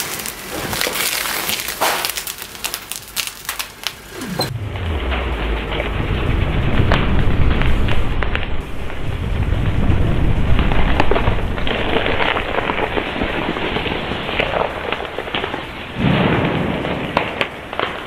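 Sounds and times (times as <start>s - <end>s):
fire roaring and crackling: 0.0s - 18.0s
low rumble: 4.1s - 14.3s.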